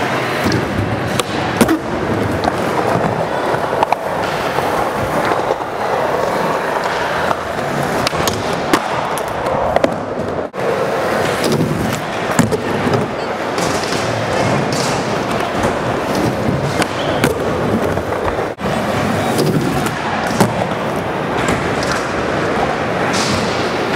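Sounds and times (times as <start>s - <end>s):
skateboard wheels rolling on concrete: 0.0s - 23.9s.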